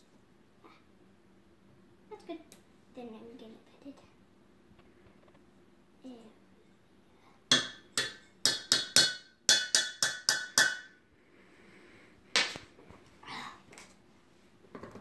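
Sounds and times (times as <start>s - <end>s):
spoon tapping metal bowl: 7.5s - 10.9s.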